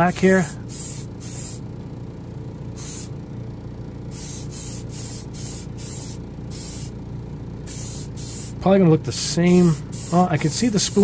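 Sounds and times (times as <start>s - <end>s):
steady low hum: 0.0s - 11.0s
airbrush hissing bursts: 0.4s - 1.6s, 2.8s - 3.1s, 4.1s - 6.9s, 7.7s - 8.6s, 9.5s - 11.0s.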